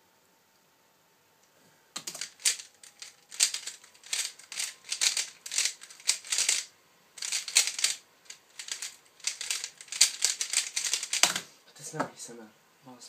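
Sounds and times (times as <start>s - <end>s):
puzzle cube plastic clacking: 2.0s - 11.5s.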